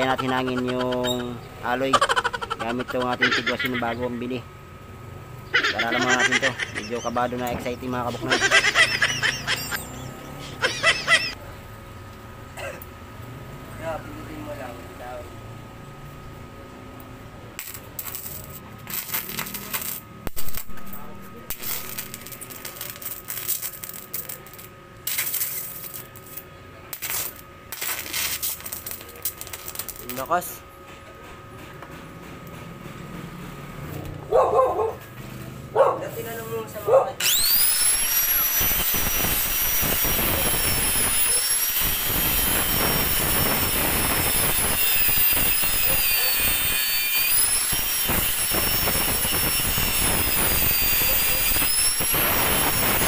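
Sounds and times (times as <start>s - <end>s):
angle grinder grinding metal: 0.0s - 4.3s, 5.6s - 11.4s, 17.6s - 26.4s, 37.2s - 53.0s
welding arc crackling and hissing: 0.0s - 4.4s, 5.6s - 11.4s, 17.6s - 30.6s, 37.2s - 53.0s.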